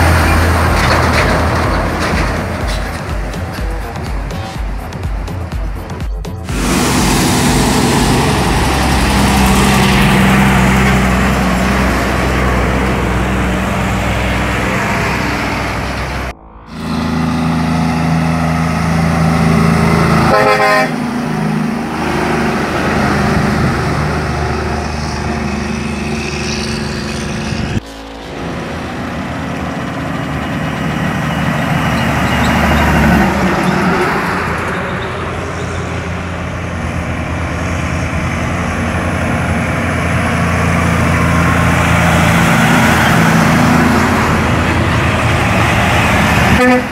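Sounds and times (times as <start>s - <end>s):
diesel trucks passing: 0.0s - 46.9s
truck horn toot: 6.5s - 23.7s, 42.2s - 46.9s.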